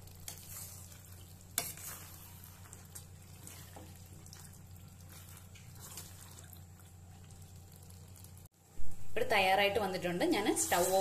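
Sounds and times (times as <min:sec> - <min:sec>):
ladle stirring and scraping pan: 0:00.0 - 0:07.3, 0:10.3 - 0:11.0.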